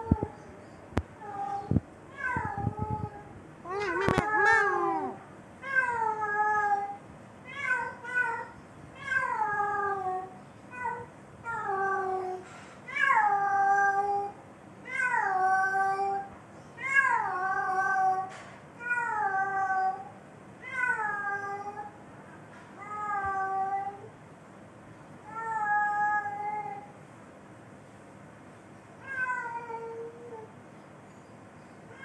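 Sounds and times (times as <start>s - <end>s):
cat yowling: 1.2s - 14.3s, 29.0s - 30.5s.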